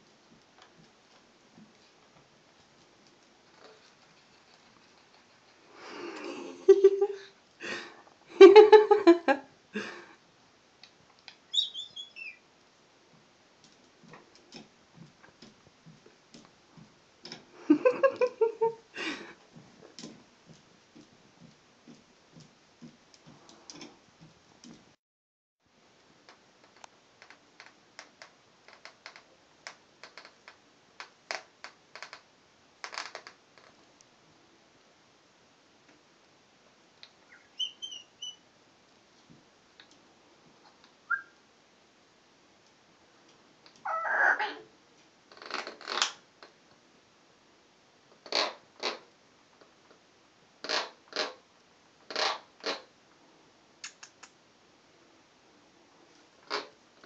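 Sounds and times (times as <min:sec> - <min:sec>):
cockatoo calling: 0:11.5 - 0:12.4, 0:37.3 - 0:38.4, 0:41.1 - 0:41.4, 0:43.8 - 0:44.7
faint clicks: 0:53.8 - 0:54.4.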